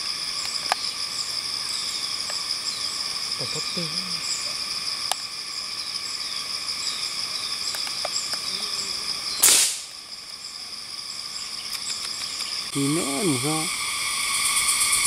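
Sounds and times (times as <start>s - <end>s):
insects droning: 0.0s - 15.0s
air rifle shot: 9.4s - 9.9s.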